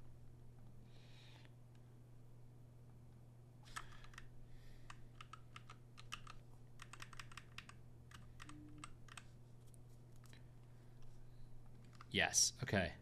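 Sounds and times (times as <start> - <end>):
low hum: 0.0 - 6.8
typing on computer keyboard: 3.7 - 9.3.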